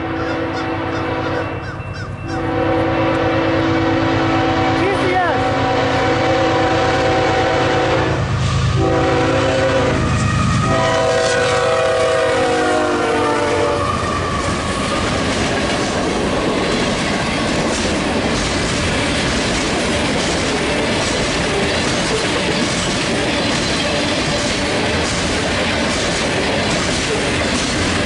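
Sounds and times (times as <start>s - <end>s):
train horn blasts: 0.0s - 14.4s
train cars rolling: 0.0s - 28.0s
wheels clicking over rail joints: 14.1s - 28.0s.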